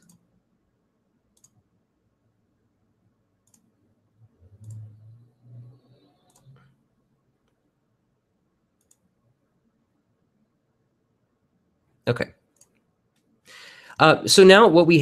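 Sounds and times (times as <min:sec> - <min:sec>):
computer mouse clicks: 0:00.0 - 0:00.3, 0:01.3 - 0:01.6, 0:03.4 - 0:03.7, 0:04.4 - 0:06.8, 0:08.8 - 0:09.1, 0:12.5 - 0:13.4
faint low sound: 0:00.0 - 0:11.5.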